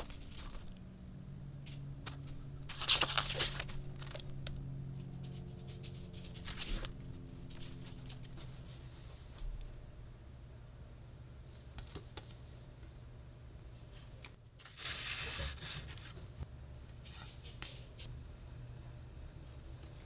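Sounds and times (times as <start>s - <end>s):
paper rustle: 0.0s - 0.8s, 1.7s - 8.9s, 14.6s - 16.3s
low hum: 0.0s - 11.5s.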